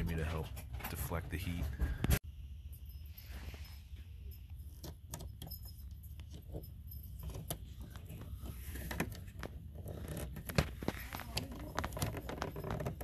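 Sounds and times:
low steady hum: 0:00.0 - 0:13.0
small clicks and metallic rattles: 0:04.4 - 0:13.0.

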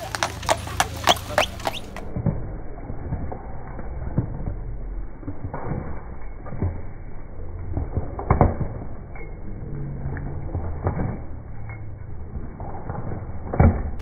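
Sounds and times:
horse hooves on wet road: 0:00.0 - 0:03.4
low steady rumble: 0:00.0 - 0:14.0.

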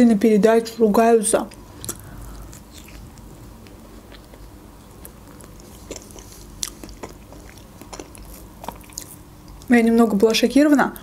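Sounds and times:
chewing soft food: 0:01.4 - 0:09.7
mouth clicks and smacks: 0:01.5 - 0:09.7.

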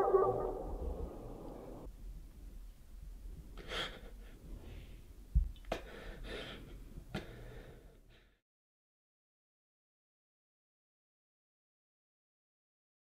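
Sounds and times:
person breathing: 0:05.7 - 0:08.4.

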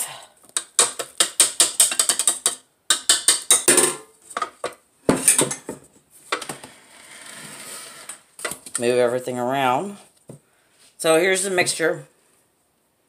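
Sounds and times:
metal whisk clicking and rattling: 0:00.8 - 0:03.7.

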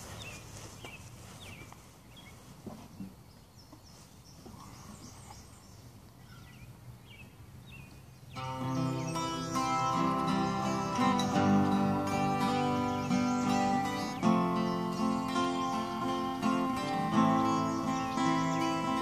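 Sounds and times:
bird chirping: 0:00.0 - 0:19.0
acoustic guitars playing: 0:08.4 - 0:19.0.

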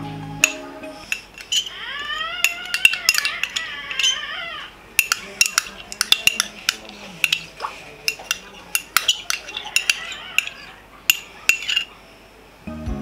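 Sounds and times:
teaspoon clinking on plastic cup: 0:00.4 - 0:04.2, 0:05.0 - 0:12.0.

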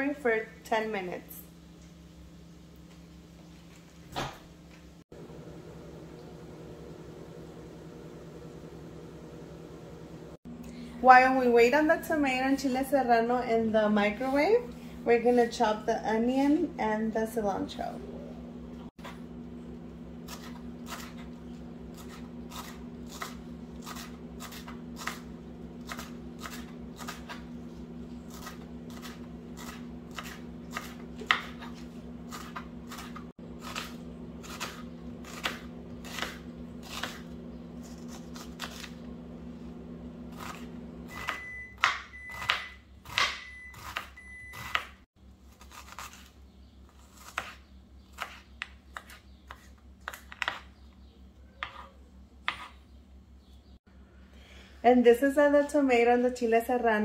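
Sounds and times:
microwave oven humming: 0:00.0 - 0:57.0
knife chopping on cutting board: 0:21.9 - 0:27.6, 0:28.3 - 0:38.9, 0:40.4 - 0:45.0, 0:47.2 - 0:47.6, 0:52.5 - 0:52.8
microwave short beeps: 0:41.1 - 0:44.8.

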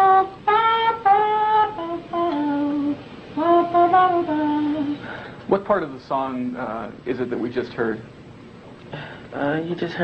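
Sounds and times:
man singing wordless melody: 0:00.0 - 0:05.0.

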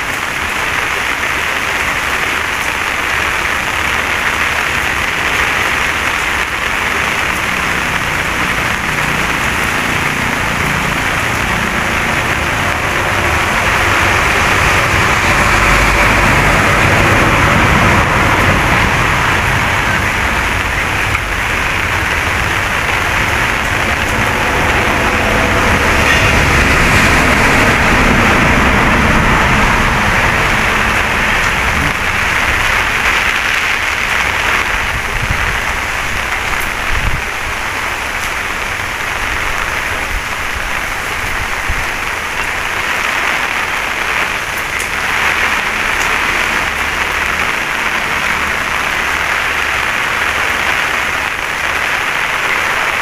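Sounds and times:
steady rain hiss: 0:00.0 - 0:53.0
low rumble: 0:06.8 - 0:37.7.

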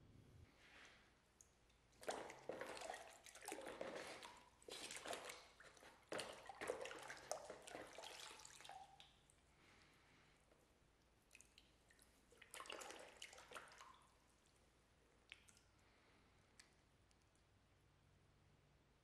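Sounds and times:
liquid sloshing in a bucket: 0:01.8 - 0:09.9, 0:11.3 - 0:15.8.

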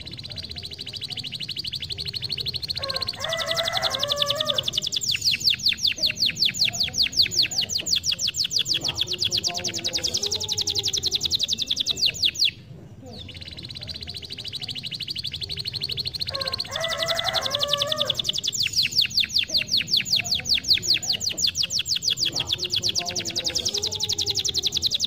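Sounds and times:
canary singing trills: 0:00.0 - 0:25.0.

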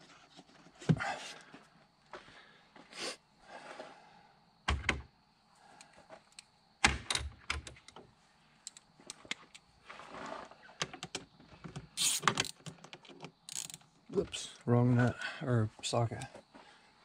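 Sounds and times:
tools and plastic parts clicking: 0:10.8 - 0:13.9.

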